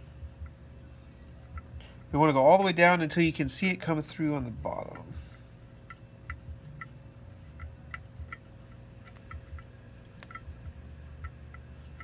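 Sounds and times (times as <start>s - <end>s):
metallic ticks of hand tap threading: 0.4s - 0.6s, 1.4s - 2.1s, 4.7s - 12.0s.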